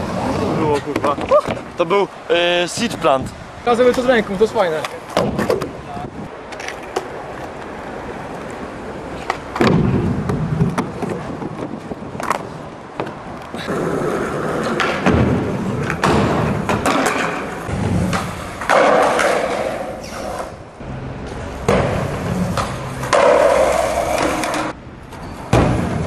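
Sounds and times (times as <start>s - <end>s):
skateboard wheels rolling on concrete: 0.0s - 26.0s
skateboard clacks and thuds: 4.8s - 5.8s, 9.2s - 20.5s, 21.6s - 24.8s, 25.4s - 26.0s.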